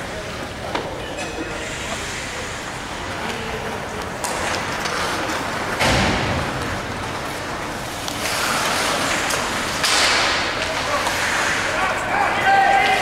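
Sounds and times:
skates scraping on ice: 0:04.2 - 0:05.8, 0:06.5 - 0:13.0.

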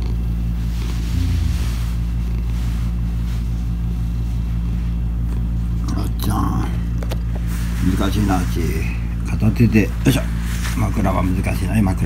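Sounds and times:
cat purring: 0:00.0 - 0:02.9.

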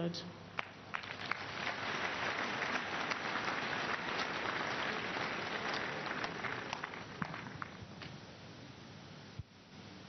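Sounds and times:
crowd applauding: 0:00.6 - 0:07.8.

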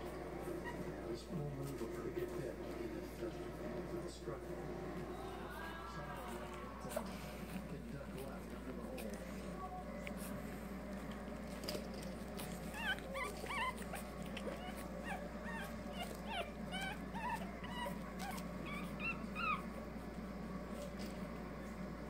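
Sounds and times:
puppies whimpering and yipping: 0:00.0 - 0:01.1, 0:11.6 - 0:20.0.

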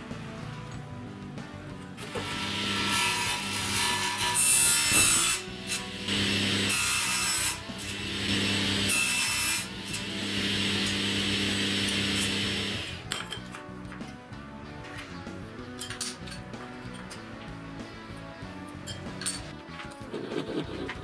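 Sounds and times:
table saw humming: 0:02.0 - 0:13.1
saw blade cutting panel: 0:02.0 - 0:13.2.

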